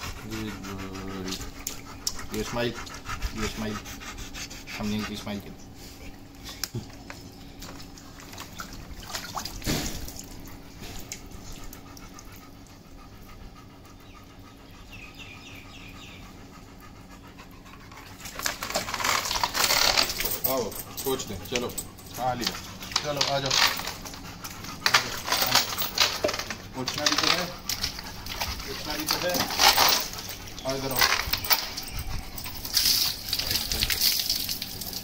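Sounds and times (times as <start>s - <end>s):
dog panting rapidly: 0.0s - 5.8s, 10.6s - 33.4s.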